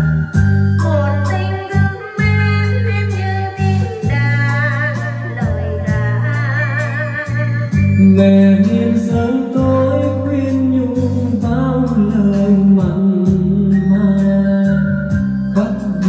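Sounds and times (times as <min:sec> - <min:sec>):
karaoke backing track with guitar: 0:00.0 - 0:16.0
man singing a slow ballad: 0:07.9 - 0:16.0.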